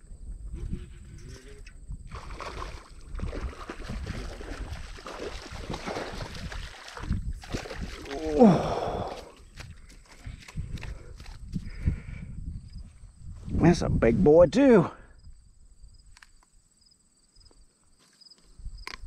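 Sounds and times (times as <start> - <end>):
fish splashing in water: 2.1 - 9.2.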